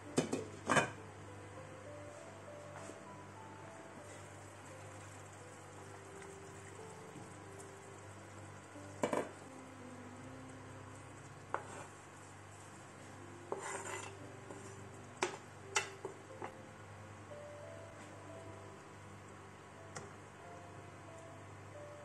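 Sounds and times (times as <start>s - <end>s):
knife scraping cutting board: 11.5s - 12.0s, 13.5s - 14.8s.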